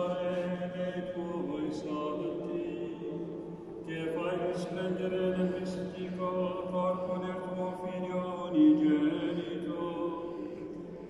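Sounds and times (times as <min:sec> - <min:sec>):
man chanting in long notes: 0:00.0 - 0:11.0.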